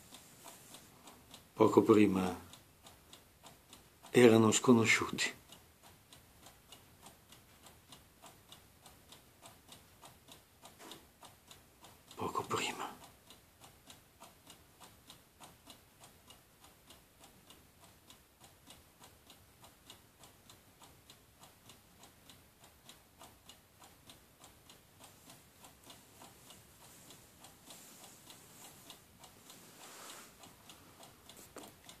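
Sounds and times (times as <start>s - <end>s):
soft rustle: 0.0s - 1.4s, 25.0s - 32.0s
clock ticking faintly: 0.0s - 32.0s.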